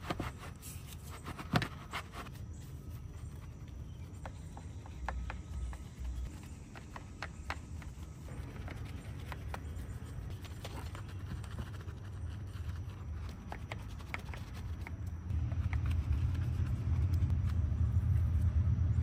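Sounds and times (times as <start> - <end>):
steady low rumble: 15.1 - 19.0.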